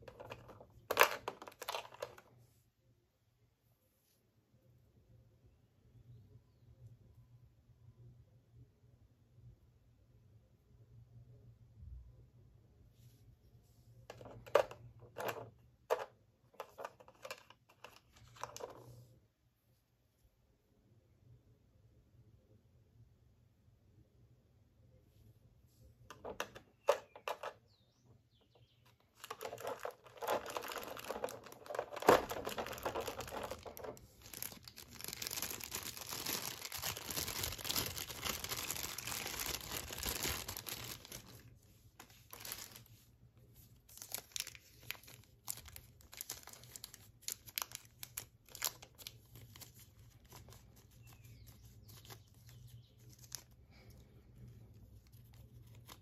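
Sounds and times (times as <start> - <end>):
plastic wrapping crinkling: 0.0 - 2.3, 28.9 - 56.0.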